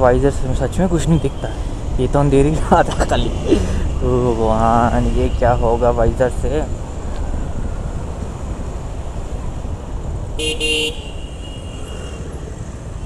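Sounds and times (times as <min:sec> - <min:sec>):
vehicle horn honk: 0:10.4 - 0:12.2.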